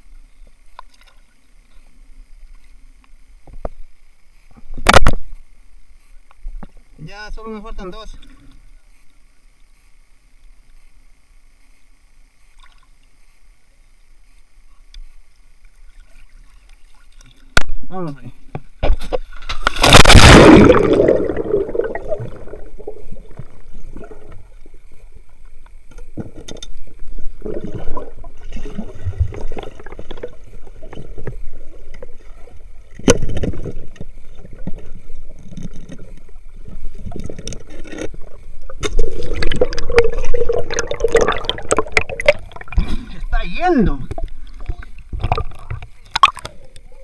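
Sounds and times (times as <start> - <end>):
water sloshing underwater: 18.6 - 47.0.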